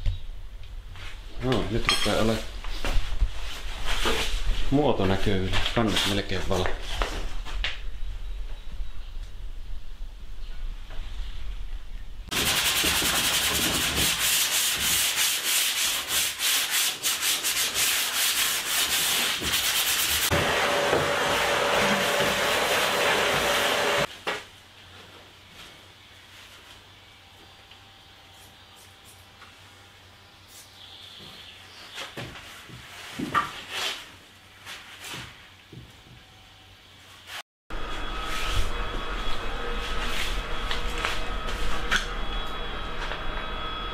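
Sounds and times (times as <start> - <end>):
sandpaper rubbing on wood: 12.3 - 20.3
shop vacuum whining: 20.3 - 24.1, 37.7 - 43.9.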